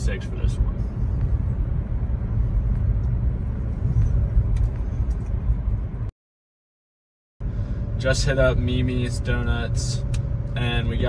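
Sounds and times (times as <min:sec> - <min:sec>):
car cabin road and engine rumble: 0:00.0 - 0:06.1, 0:07.4 - 0:11.0.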